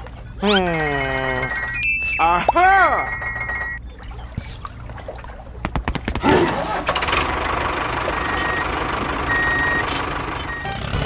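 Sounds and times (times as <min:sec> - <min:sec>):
tractor engine starting: 0:06.2 - 0:11.0.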